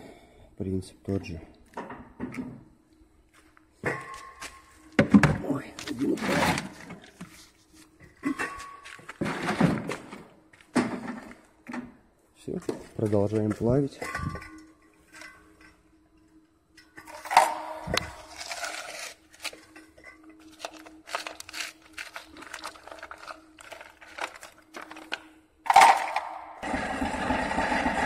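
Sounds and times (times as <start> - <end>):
faint steady hum: 0.0 - 26.6
loud mechanical noise: 25.7 - 28.0.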